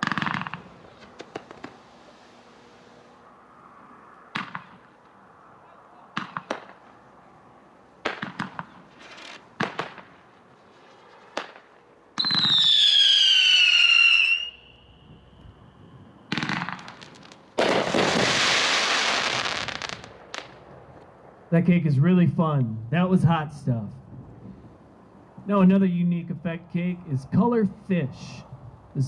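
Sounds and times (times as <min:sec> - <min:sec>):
firework pops: 0:00.0 - 0:01.8, 0:06.1 - 0:06.8, 0:08.0 - 0:10.1, 0:11.3 - 0:12.6, 0:16.3 - 0:18.4
dense firework crackling: 0:00.0 - 0:03.2, 0:06.1 - 0:07.0, 0:08.0 - 0:21.0
firework whistle falling in pitch: 0:12.2 - 0:15.5.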